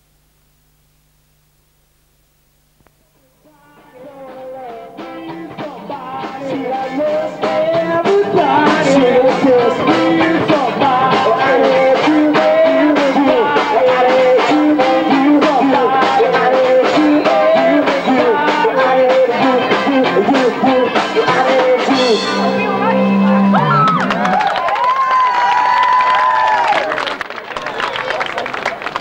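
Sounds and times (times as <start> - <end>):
person singing: 3.2 - 24.4
live rock band: 4.0 - 24.8
steady drum beat: 5.0 - 24.5.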